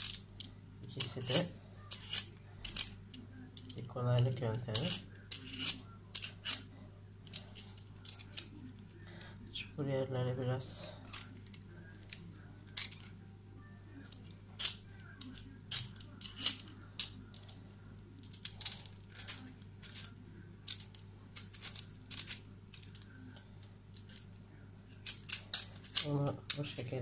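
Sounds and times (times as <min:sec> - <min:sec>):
peeler scraping pumpkin rind: 0:04.7 - 0:06.6.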